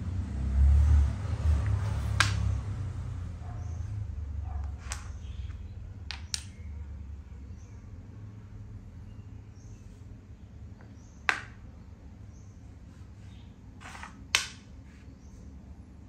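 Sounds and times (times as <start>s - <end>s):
plastic chess pieces clicking on board: 1.6s - 2.5s, 4.7s - 5.2s, 6.1s - 6.6s, 11.2s - 11.6s, 13.8s - 14.6s.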